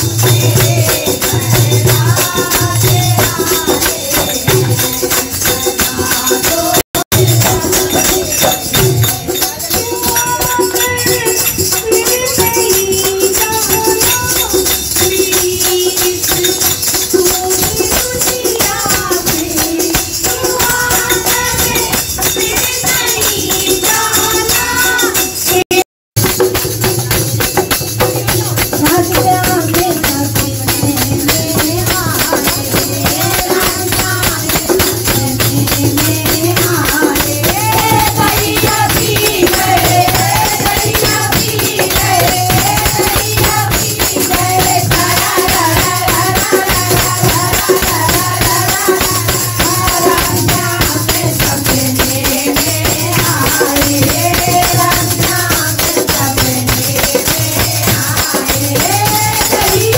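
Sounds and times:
dholak drum: 0.0s - 59.9s
jingling percussion: 0.0s - 59.9s
women singing devotional song: 0.0s - 59.9s.

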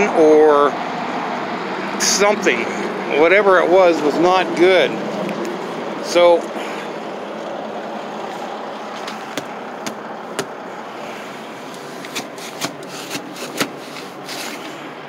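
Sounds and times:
steady vehicle noise: 0.0s - 15.0s
sharp clicks and taps: 9.0s - 10.6s.

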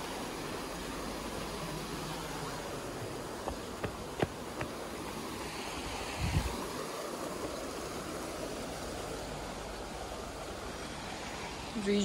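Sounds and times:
steady rushing noise: 0.0s - 11.7s.

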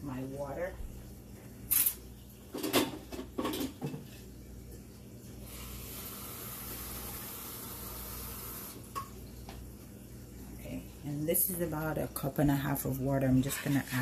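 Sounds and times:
water running: 0.0s - 14.0s
kitchenware clattering: 1.7s - 4.2s.

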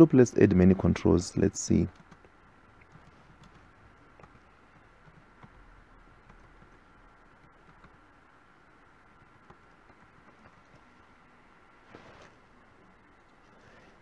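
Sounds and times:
room hum: 0.0s - 14.0s
faint keyboard typing: 1.7s - 8.3s, 9.1s - 11.0s.

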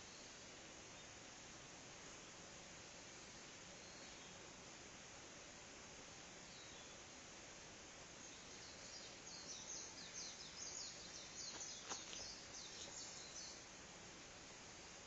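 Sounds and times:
songbird singing: 0.0s - 1.5s, 2.8s - 4.6s, 6.2s - 7.2s, 8.0s - 13.9s
faint outdoor hiss: 0.0s - 15.0s.

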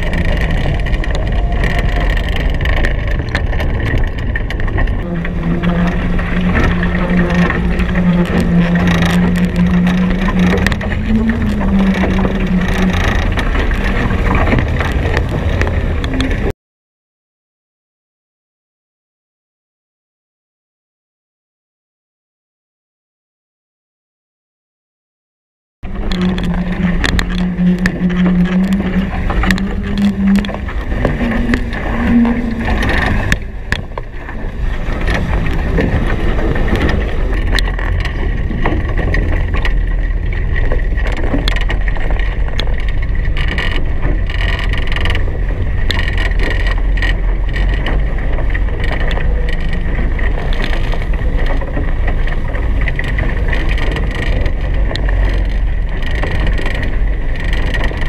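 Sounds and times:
water against boat hulls: 0.0s - 16.5s, 25.8s - 58.0s
wind on microphone: 0.0s - 16.5s, 25.8s - 58.0s
deep rumble: 0.0s - 16.6s, 25.8s - 58.0s
humming tone: 4.9s - 16.5s, 25.8s - 55.8s.

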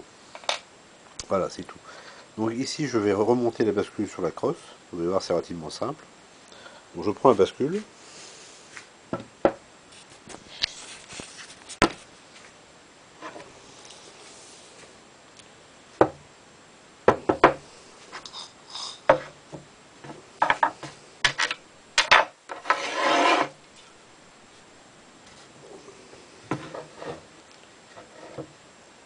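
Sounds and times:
metal scraping: 21.2s - 23.6s.

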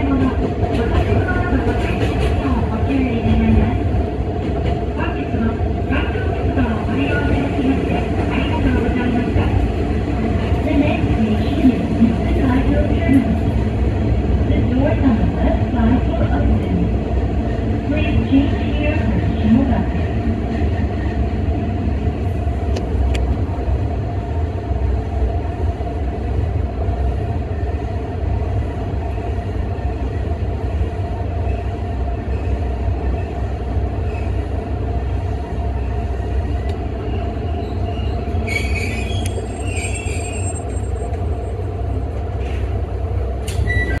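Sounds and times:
diesel railcar engine rumble: 0.0s - 44.0s
high wheel squeal: 37.6s - 41.1s.

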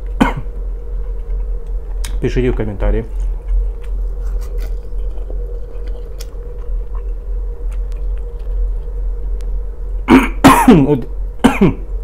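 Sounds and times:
steady low hum: 0.0s - 12.0s
person chewing food: 3.1s - 9.5s.

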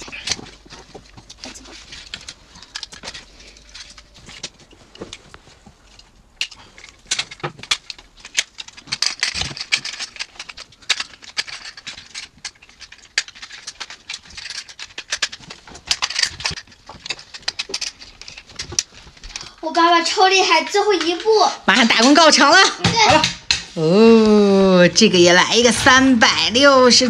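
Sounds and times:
plastic toy parts clicking and snapping: 0.0s - 5.2s, 5.9s - 19.6s.

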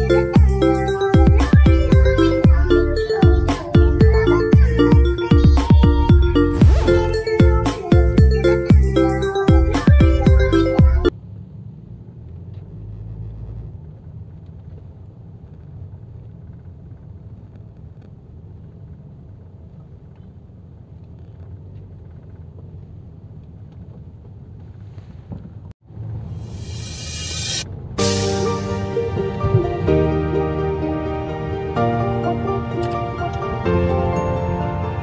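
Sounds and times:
background music: 0.0s - 11.1s, 26.5s - 35.0s
car engine and road noise: 0.0s - 35.0s.

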